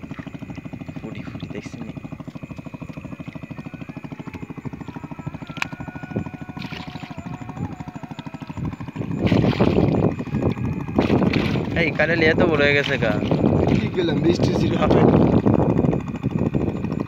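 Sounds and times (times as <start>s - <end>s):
water splashing: 0.0s - 3.7s, 6.5s - 8.5s, 9.2s - 14.4s
small engine chugging: 0.0s - 17.0s.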